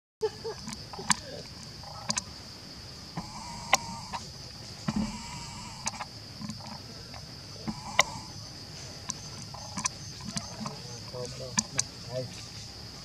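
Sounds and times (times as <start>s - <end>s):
insects droning: 0.2s - 13.0s
sharp clicks: 0.6s - 2.3s, 3.2s - 4.3s, 4.9s - 8.4s, 9.0s - 12.0s.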